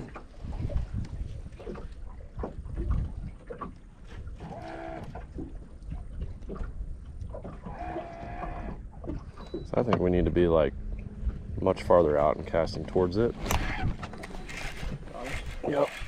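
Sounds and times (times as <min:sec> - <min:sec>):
small waves lapping against boat: 0:00.0 - 0:16.0
wind buffeting microphone: 0:00.0 - 0:16.0
distant animal wavering call: 0:07.7 - 0:08.8.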